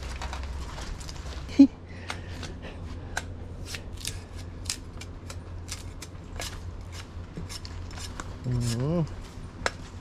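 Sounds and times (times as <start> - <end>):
machete chopping sugarcane: 3.1 - 8.2.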